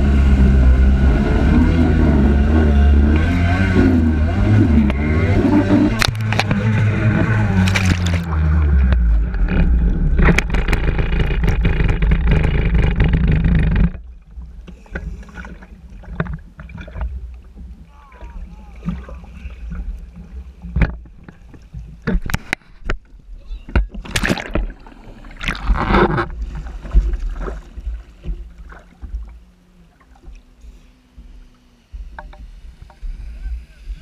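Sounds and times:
personal watercraft engine: 0.0s - 34.0s
water lapping: 0.0s - 34.0s
rushing water and spray: 5.6s - 9.6s
small knocks and clicks: 20.7s - 23.1s, 32.1s - 33.0s.

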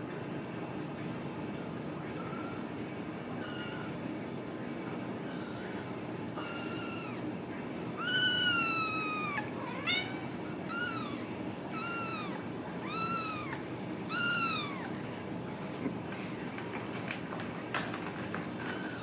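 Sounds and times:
kitten meowing: 3.4s - 3.9s, 5.2s - 7.3s, 7.9s - 15.0s.

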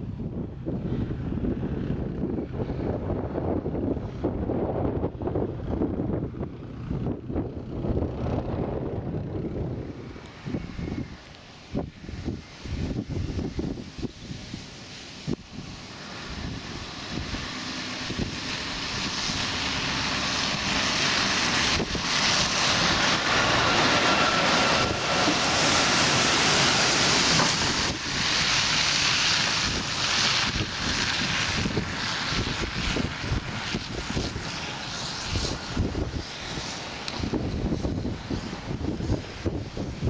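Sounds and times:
wind buffeting microphone: 0.0s - 40.0s
lorry driving past: 15.7s - 29.5s.

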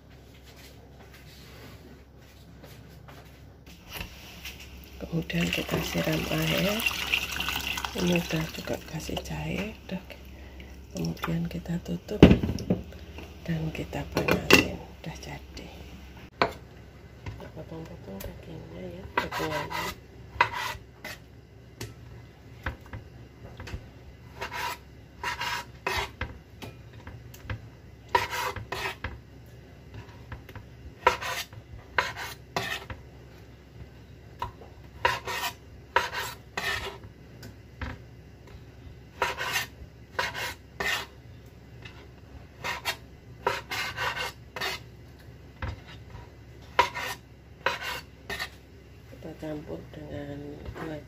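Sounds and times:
knife scraping cutting board: 19.1s - 21.2s, 24.3s - 26.2s, 28.1s - 29.1s, 31.0s - 33.0s, 35.0s - 37.1s, 39.2s - 41.1s, 41.8s - 44.9s, 45.6s - 48.6s.

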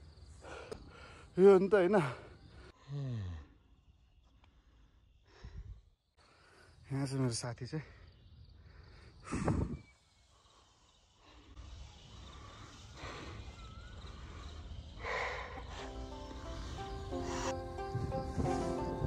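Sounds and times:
heavy breathing: 8.6s - 18.8s
background music: 15.6s - 19.0s
wind rumble on microphone: 17.0s - 19.0s.

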